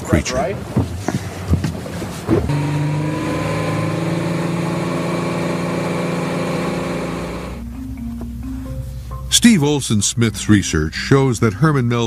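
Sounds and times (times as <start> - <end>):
motorboat engine droning: 2.4 - 8.8.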